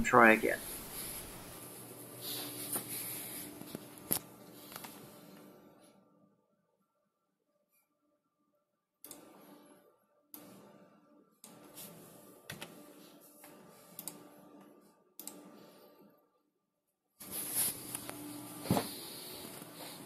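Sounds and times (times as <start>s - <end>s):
keyboard and mouse clicks: 14.0s - 14.2s.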